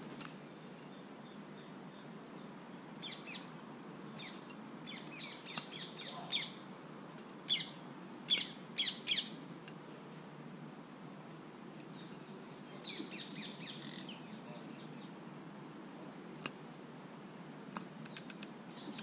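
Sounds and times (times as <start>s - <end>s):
faint birdsong: 0.2s - 9.4s, 11.7s - 15.2s, 17.8s - 19.0s.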